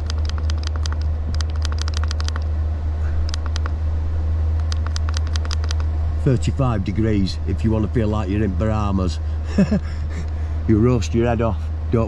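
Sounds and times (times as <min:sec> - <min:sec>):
heater blower humming: 0:00.0 - 0:12.0
controller button clicks: 0:04.6 - 0:05.9.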